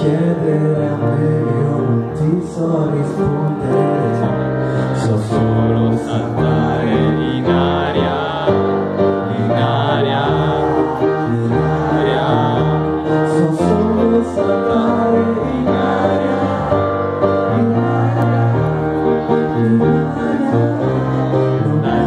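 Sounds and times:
keyboard piano chords: 0.0 - 22.0
man singing into microphone: 0.0 - 22.0.

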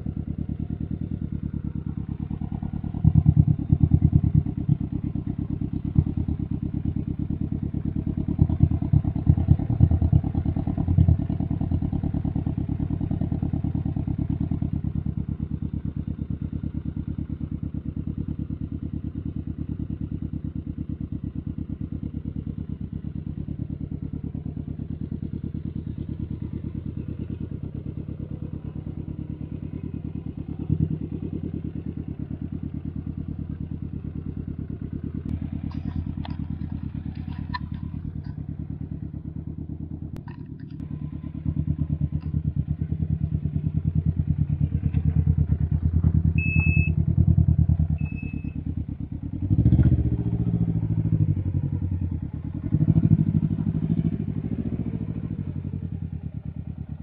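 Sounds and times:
motorcycle engine idling: 0.0 - 57.0
throttle blips: 46.4 - 47.0.

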